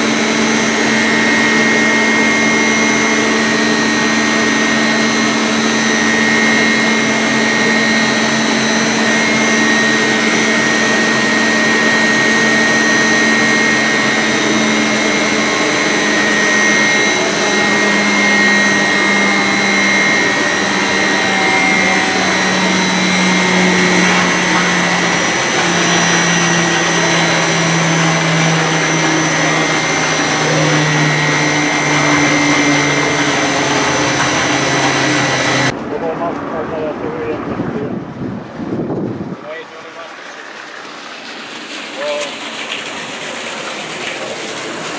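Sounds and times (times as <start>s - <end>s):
pumps and electric motors whining: 0.0s - 36.0s, 39.5s - 44.9s
low hum: 0.0s - 44.6s.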